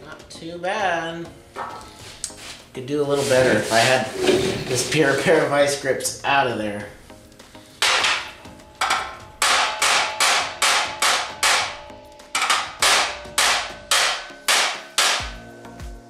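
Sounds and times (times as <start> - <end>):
hammer striking sheet metal: 1.6 - 2.0, 7.8 - 15.6.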